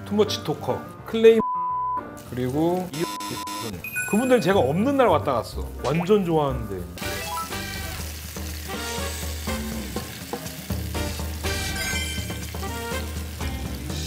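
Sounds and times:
background music: 0.0s - 14.0s
meat sizzling in a frying pan: 7.0s - 14.0s.

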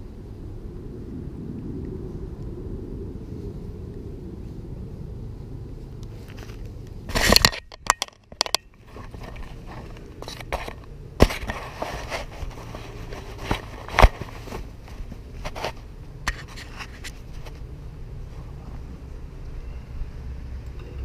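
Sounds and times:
microphone rustling against leaves: 8.7s - 19.2s.

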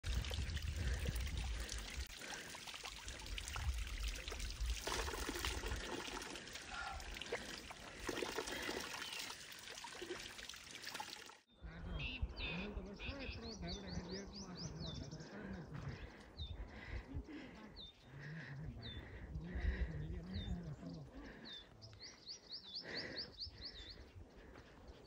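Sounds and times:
water splattering on stones: 0.0s - 11.4s
water pouring from spout: 0.0s - 11.5s.

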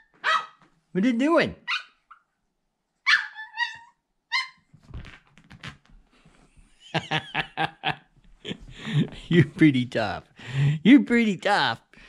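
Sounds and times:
puppy yipping barks: 0.0s - 0.6s, 1.6s - 2.3s, 3.0s - 4.6s.

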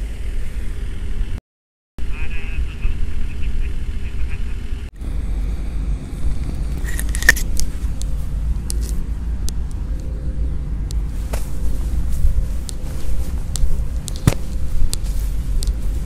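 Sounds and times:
wind buffeting microphone: 5.0s - 16.0s.

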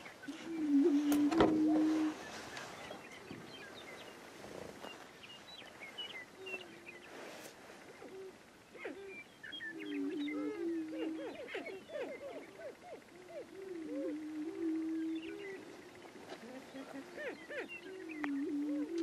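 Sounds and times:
prairie chickens booming: 0.0s - 19.0s.

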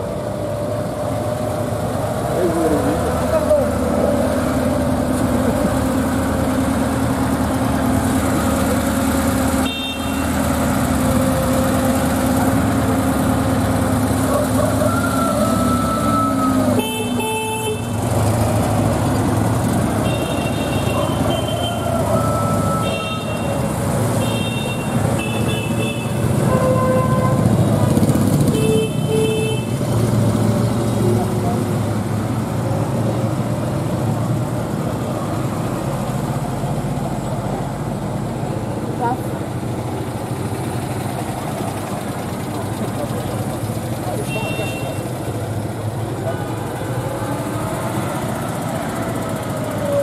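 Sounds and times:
cars driving past slowly: 0.0s - 50.0s
high-pitched car horn toots: 9.6s - 10.4s, 20.0s - 27.6s.

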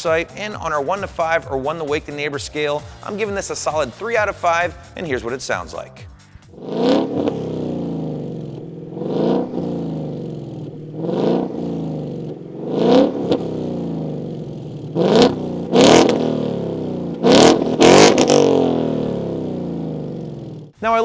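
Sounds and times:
car engine revving and idling: 6.5s - 20.8s.

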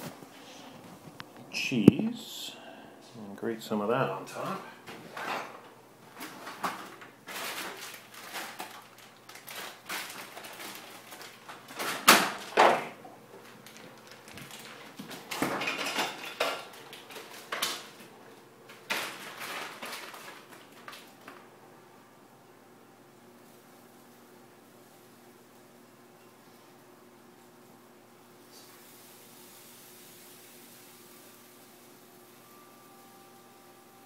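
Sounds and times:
kitchen scrapes and rustles: 4.9s - 21.2s.

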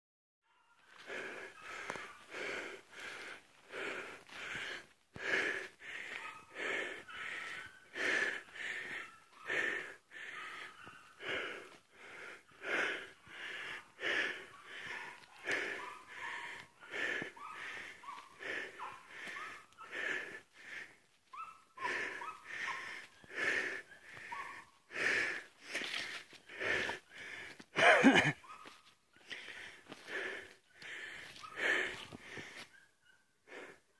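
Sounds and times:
heavy wheezy breathing: 0.9s - 21.1s, 21.8s - 28.4s, 29.2s - 32.8s, 33.4s - 33.9s.

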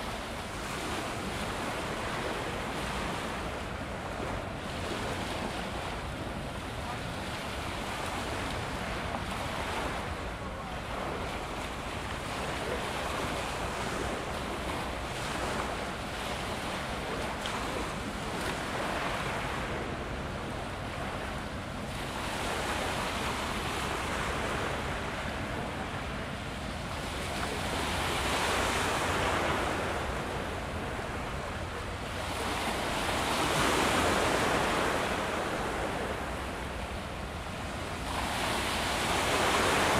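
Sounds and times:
waves washing against rocks: 37.6s - 39.9s.

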